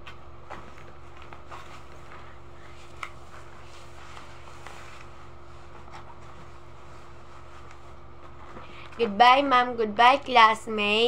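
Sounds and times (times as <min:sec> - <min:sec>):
low background hum: 0:00.0 - 0:11.0
cloth rustling: 0:00.5 - 0:08.9.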